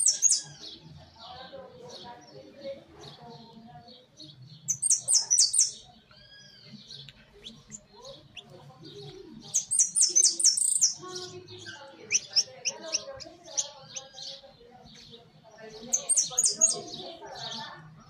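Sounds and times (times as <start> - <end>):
finch chirping: 0.0 - 0.8, 4.2 - 17.6.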